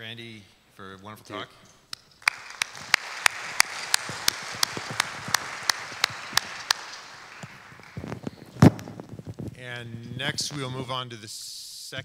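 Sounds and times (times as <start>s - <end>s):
sharp even claps: 1.9s - 9.1s
audience applauding: 2.2s - 9.0s.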